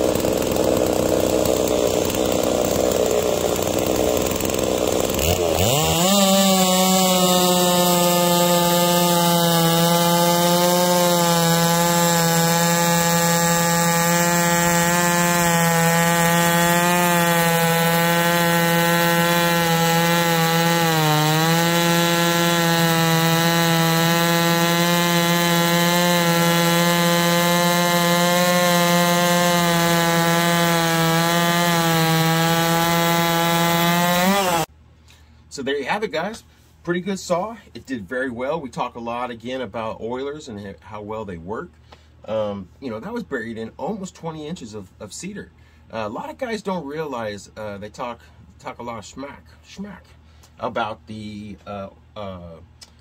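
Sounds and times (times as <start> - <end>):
chainsaw cutting wood full throttle: 0.0 - 34.7.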